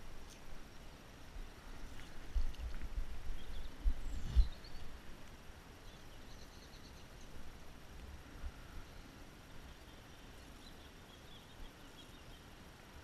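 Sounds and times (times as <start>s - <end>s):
faint bird chirps: 3.3s - 5.0s, 5.8s - 7.5s, 8.5s - 12.6s.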